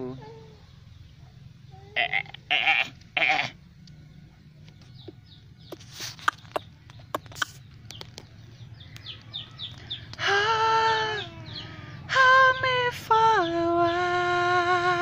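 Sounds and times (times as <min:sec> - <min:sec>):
animal bleating: 0:01.8 - 0:03.6.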